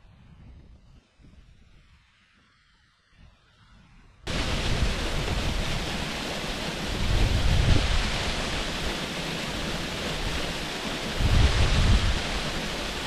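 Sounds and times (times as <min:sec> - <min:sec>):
waterfall rushing: 0:04.3 - 0:13.0.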